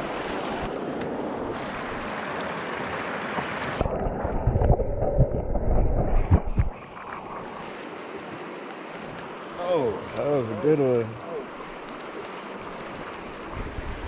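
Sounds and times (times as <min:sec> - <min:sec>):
stream water rushing: 0:00.0 - 0:14.0
water knocking against microphone: 0:03.3 - 0:06.8.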